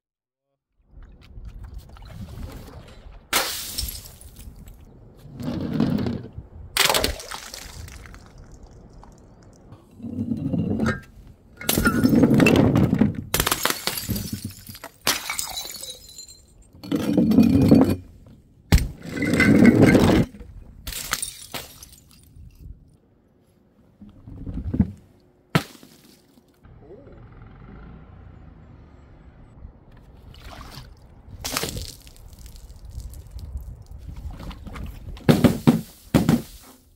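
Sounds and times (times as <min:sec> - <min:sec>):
glass breaking: 0:03.3 - 0:04.4, 0:11.6 - 0:12.4, 0:13.4 - 0:16.6, 0:20.9 - 0:22.3
liquid splashing: 0:06.8 - 0:09.7.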